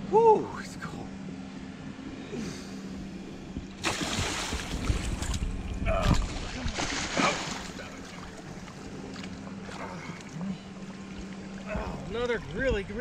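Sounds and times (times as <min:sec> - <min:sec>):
water splashing and sloshing: 0:03.5 - 0:13.0.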